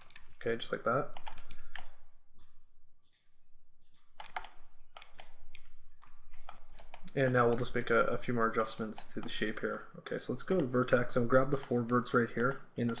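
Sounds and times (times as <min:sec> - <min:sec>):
computer mouse clicks: 0:01.1 - 0:07.9, 0:10.4 - 0:13.0
keyboard clicks: 0:01.1 - 0:09.8, 0:10.4 - 0:13.0.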